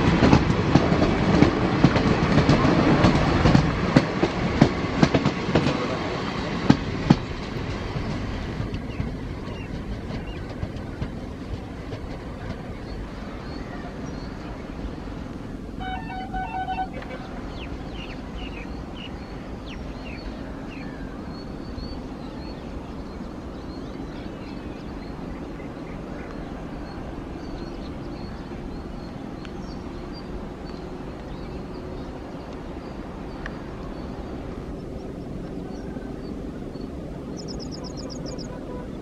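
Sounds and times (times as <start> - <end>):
train rumbling on rails: 0.0 - 39.0
birds chirping: 15.5 - 39.0.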